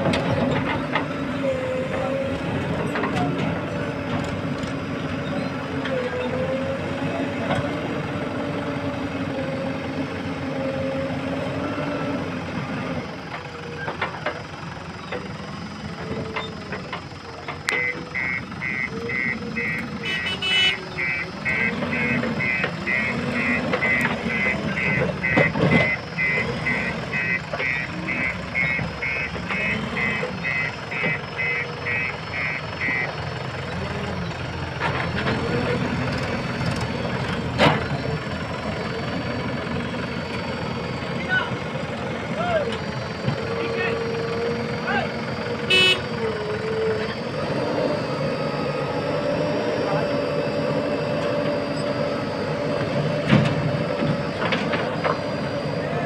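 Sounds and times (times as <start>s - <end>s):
diesel engine revving: 0.0s - 56.0s
reversing alarm beeping: 15.9s - 34.5s, 42.3s - 56.0s.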